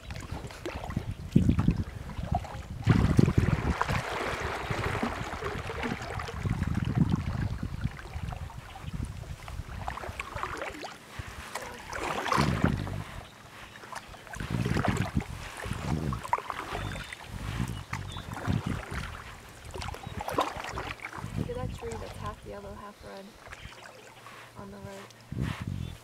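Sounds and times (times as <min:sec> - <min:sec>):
paddle strokes in water: 0:00.0 - 0:26.0.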